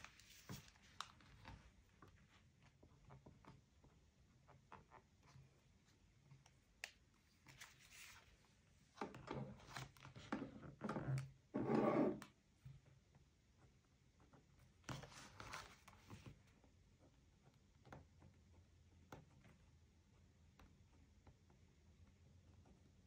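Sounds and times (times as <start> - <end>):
paper rustling: 0.0 - 1.6, 7.4 - 8.5.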